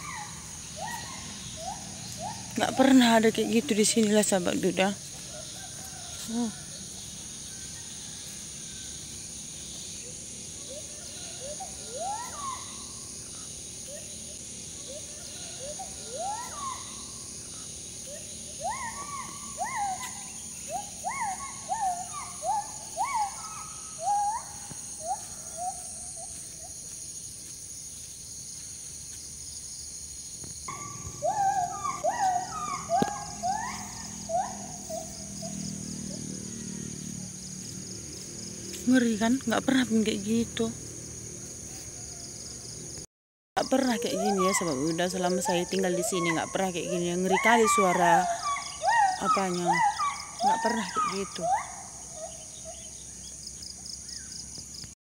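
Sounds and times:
monkey whooping calls: 0:00.0 - 0:03.8, 0:10.6 - 0:12.8, 0:14.9 - 0:17.0, 0:18.1 - 0:26.4, 0:30.7 - 0:36.9, 0:44.0 - 0:52.9
high insect hiss: 0:00.0 - 0:55.0.

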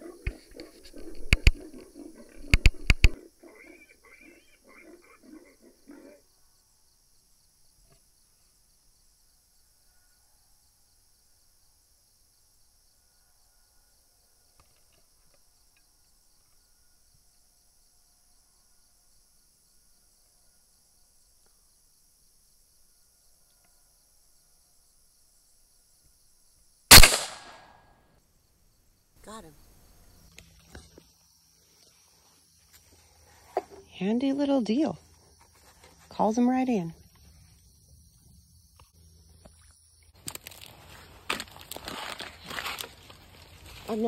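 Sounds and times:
hog grunts: 0:01.0 - 0:06.2
rifle shot with echo: 0:26.9 - 0:27.8.

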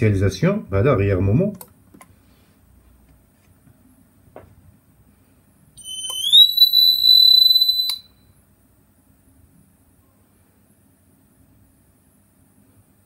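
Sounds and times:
fire alarm tone rising: 0:05.8 - 0:08.1.

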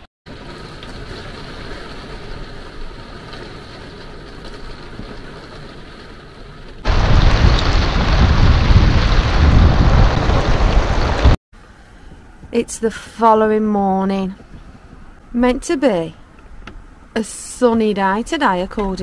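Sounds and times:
heavy rain falling: 0:00.3 - 0:11.4
wind buffeting microphone: 0:06.9 - 0:11.4.

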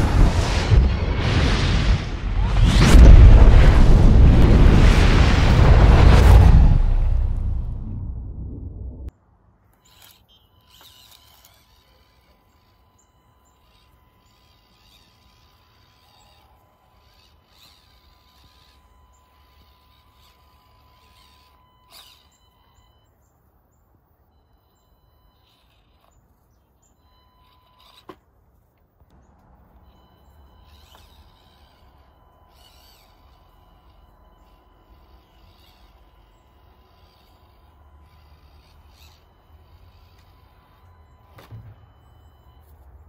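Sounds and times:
low steady rumble: 0:00.0 - 0:09.1
faint steady tone: 0:07.4 - 0:43.0
birds chirping: 0:09.7 - 0:28.4, 0:29.0 - 0:42.6.

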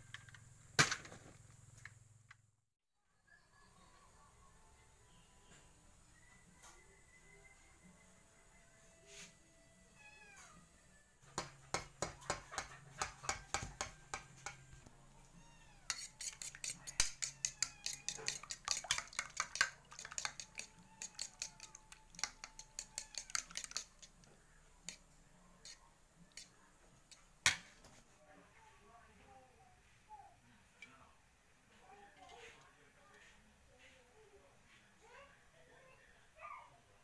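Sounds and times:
metal utensil clinking on bowl: 0:15.9 - 0:24.0.

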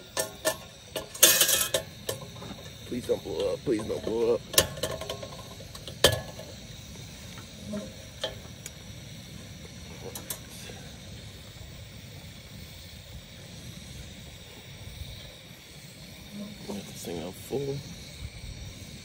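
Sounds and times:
gas heater hissing: 0:00.0 - 0:19.0
heater control clicks: 0:08.2 - 0:08.8.

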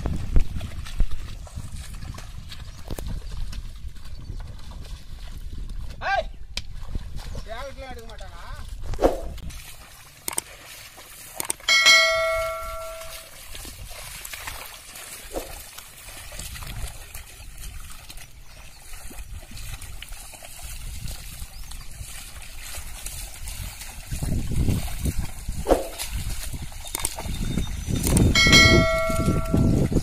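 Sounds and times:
water and mud sloshing: 0:00.0 - 0:30.0
bell-like chime: 0:11.7 - 0:13.3, 0:28.4 - 0:29.8.

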